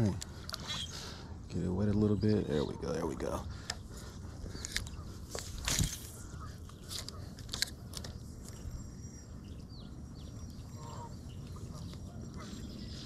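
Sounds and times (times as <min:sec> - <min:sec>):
faint bird chirps: 0:00.5 - 0:13.0.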